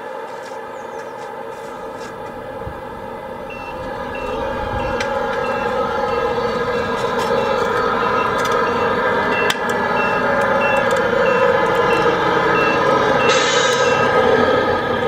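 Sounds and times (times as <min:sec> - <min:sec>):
toy truck engine sound: 0:01.7 - 0:15.0
reversing beeps: 0:03.3 - 0:14.3.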